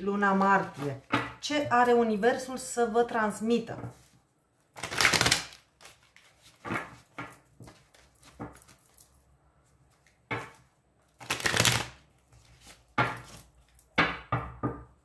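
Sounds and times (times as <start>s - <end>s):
cards being shuffled: 4.8s - 9.0s, 11.2s - 13.5s.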